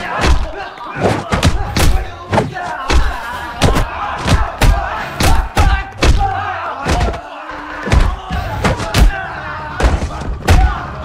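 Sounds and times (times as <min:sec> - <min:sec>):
punch and kick impacts: 0:00.0 - 0:06.3
fighters grunting and shouting: 0:00.0 - 0:11.0.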